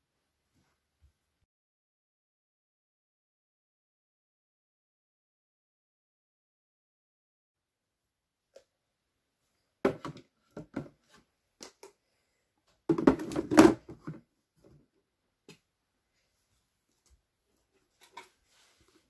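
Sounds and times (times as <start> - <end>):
plastic containers knocking in drawer: 9.8 - 11.0, 12.9 - 14.2.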